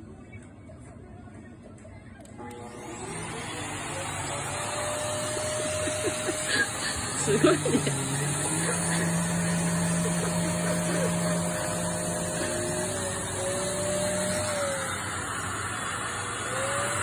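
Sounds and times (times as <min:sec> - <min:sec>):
vacuum cleaner on carpet: 0:02.3 - 0:17.0.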